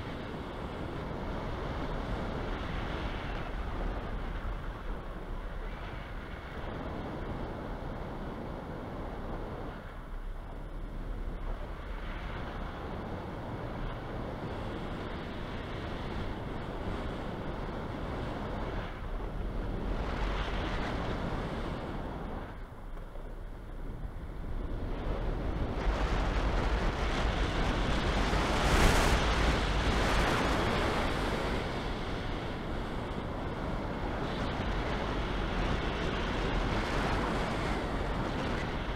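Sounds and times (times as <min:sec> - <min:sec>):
wind buffeting microphone: 0:00.0 - 0:38.9.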